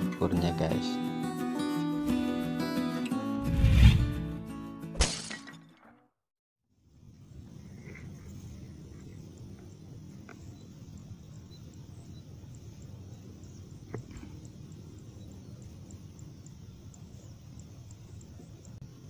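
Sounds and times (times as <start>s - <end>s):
faint high ticks: 8.9s - 18.8s.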